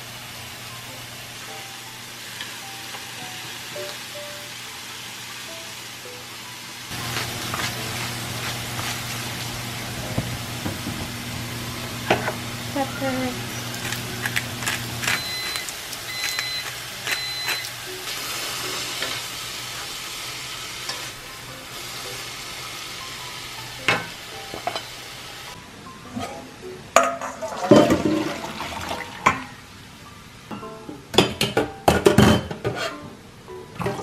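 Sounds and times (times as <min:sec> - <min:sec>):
bean sprouts sizzling in frying pan: 0:00.0 - 0:25.6
metal clattering in sink: 0:27.0 - 0:28.5.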